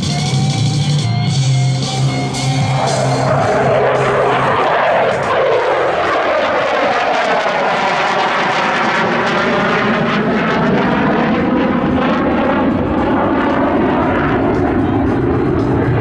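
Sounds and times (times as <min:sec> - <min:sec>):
jet engine roaring past: 0:01.0 - 0:16.0.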